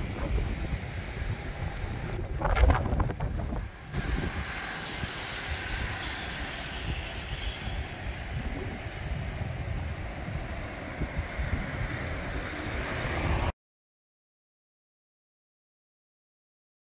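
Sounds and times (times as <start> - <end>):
wind on microphone: 0.0 - 13.5
outdoor hiss: 3.5 - 13.0.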